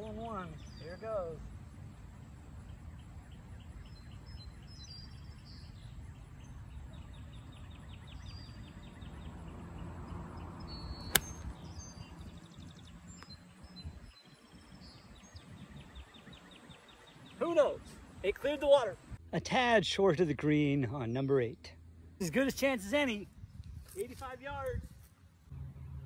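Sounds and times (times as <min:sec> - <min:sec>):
golf club striking ball: 0:11.0 - 0:11.6.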